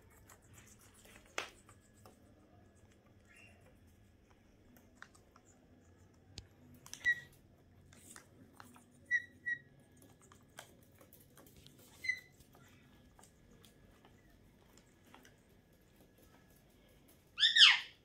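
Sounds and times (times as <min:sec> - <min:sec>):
parrot whistled chirps: 0:17.4 - 0:17.9.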